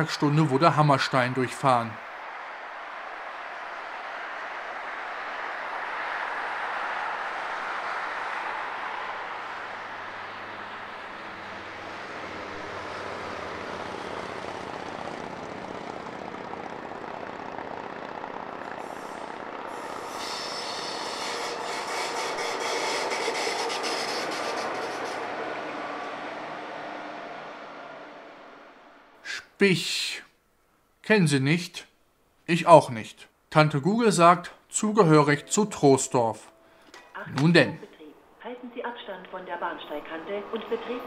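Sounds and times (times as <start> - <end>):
diesel locomotive engine drone: 0.0 - 30.0, 34.8 - 41.0
road traffic hiss: 0.0 - 31.0
train wheels hissing and clicking: 18.8 - 25.4.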